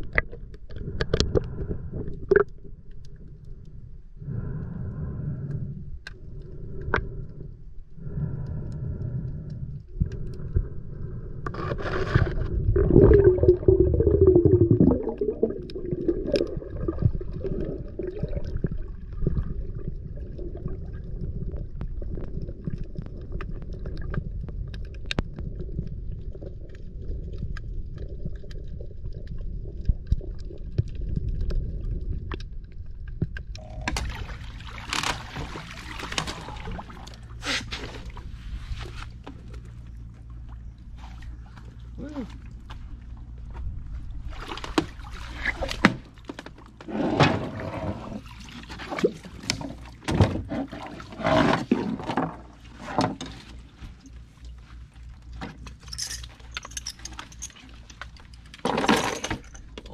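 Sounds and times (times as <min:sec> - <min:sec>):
underwater rumble of moving water: 0:00.0 - 0:56.5
splashing water: 0:33.6 - 0:38.5, 0:44.2 - 0:46.3.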